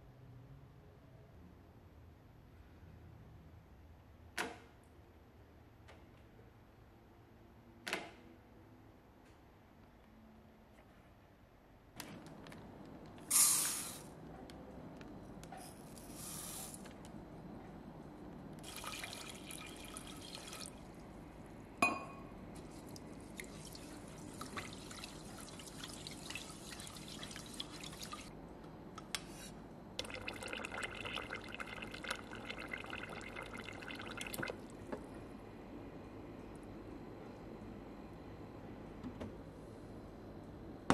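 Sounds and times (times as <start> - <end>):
water running into pot: 18.6 - 20.8, 23.2 - 28.3, 30.0 - 34.7.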